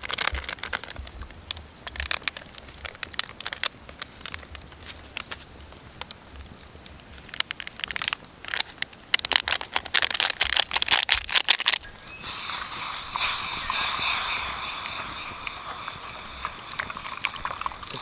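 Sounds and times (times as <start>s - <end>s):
plastic sachet crinkling: 0.0s - 1.2s, 1.8s - 5.4s, 7.2s - 12.0s
milk pouring into mug: 12.3s - 18.0s.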